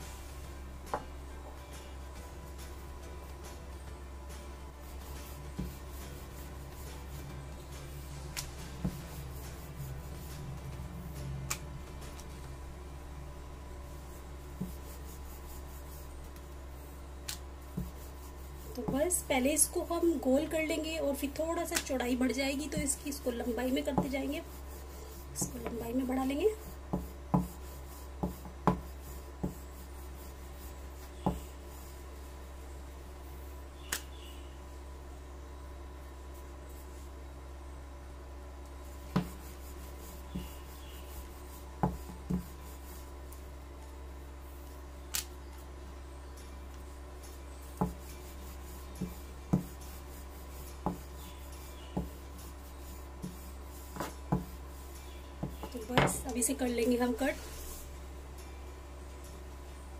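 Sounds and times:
rolling pin rubbing on dough: 0.0s - 12.8s, 13.4s - 34.4s, 38.7s - 45.0s, 46.5s - 58.2s
low hum: 0.0s - 26.9s
rolling pin knocking on board: 26.9s - 27.6s, 31.2s - 31.5s, 47.8s - 48.0s, 49.0s - 49.8s, 54.0s - 54.6s.

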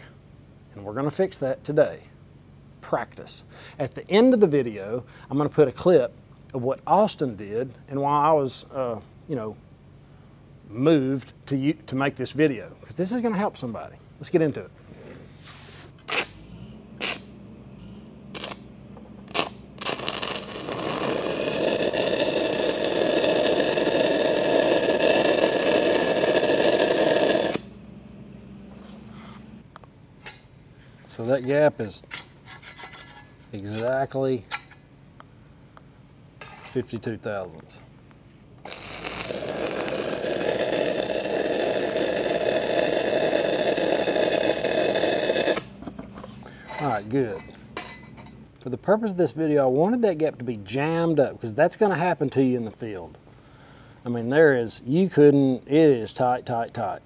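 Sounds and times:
welding arc hiss and crackle: 17.0s - 17.3s, 18.4s - 18.7s, 19.3s - 27.8s, 38.6s - 45.8s.

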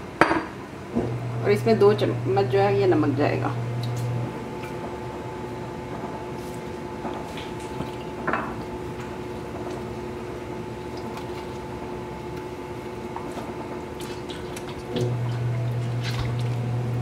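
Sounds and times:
steady hum: 0.0s - 17.0s
meat squelching: 8.8s - 16.7s
small water splashes: 10.7s - 12.5s, 13.8s - 17.0s.

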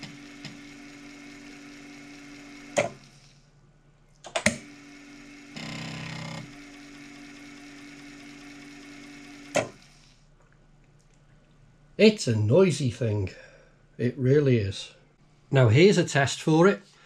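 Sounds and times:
floppy disk drive humming: 0.0s - 3.1s, 4.4s - 9.9s
disk drive reading buzz: 0.0s - 3.2s, 4.5s - 10.0s.

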